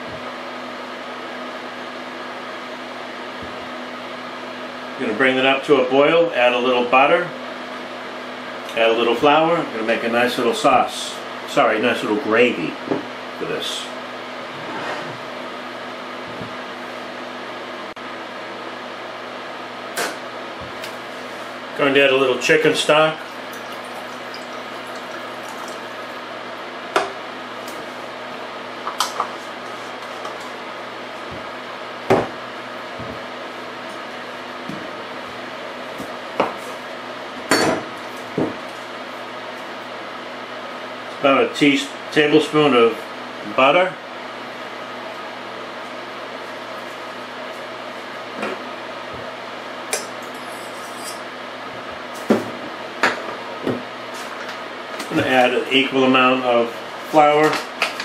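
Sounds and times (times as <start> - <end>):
stock pouring into saucepan: 23.2 - 26.0.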